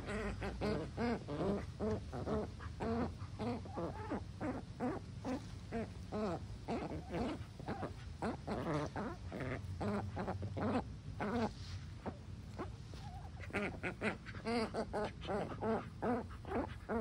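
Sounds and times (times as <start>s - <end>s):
ducks squeaky calls: 0.0s - 17.0s.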